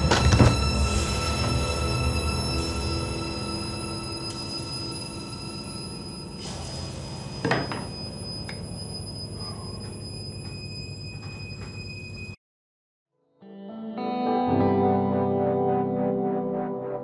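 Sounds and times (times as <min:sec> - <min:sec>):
dark droning film score: 0:00.0 - 0:12.4.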